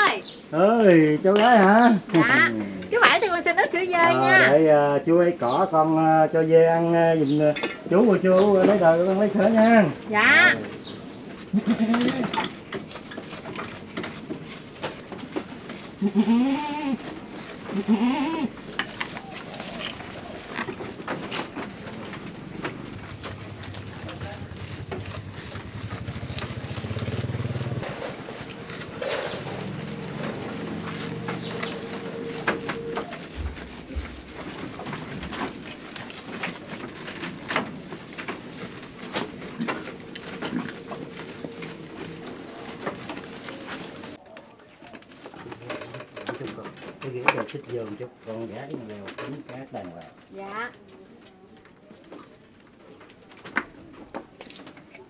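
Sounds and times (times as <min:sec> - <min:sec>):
goats chewing and rustling leaves: 0:00.2 - 0:55.0
goat bleating: 0:11.4 - 0:12.7, 0:15.6 - 0:20.5, 0:22.9 - 0:36.3.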